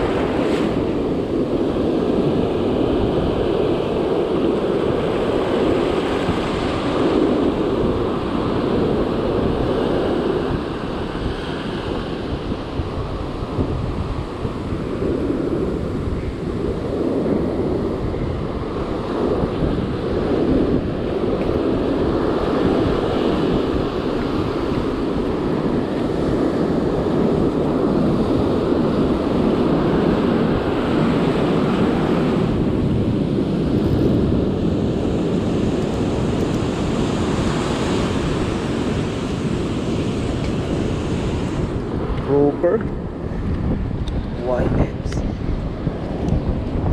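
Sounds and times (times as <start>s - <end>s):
ocean surf breaking: 0.0s - 46.9s
wind noise on microphone: 0.0s - 46.9s.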